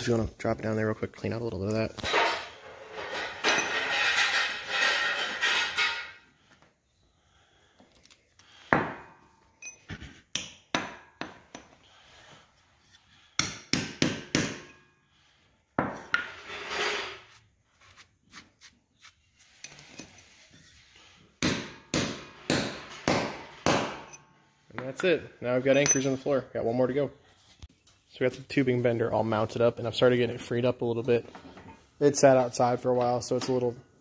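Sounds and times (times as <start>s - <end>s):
hammer striking steel rod: 13.4s - 14.8s, 21.4s - 24.2s.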